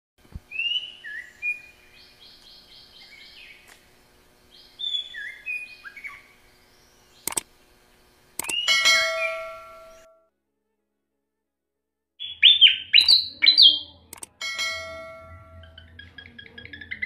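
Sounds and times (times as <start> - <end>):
songbird whistling: 0.5 - 3.6, 4.5 - 7.4, 8.4 - 10.0, 12.2 - 13.8
sharp clicks: 7.2 - 7.5, 8.4 - 8.7, 14.1 - 14.4.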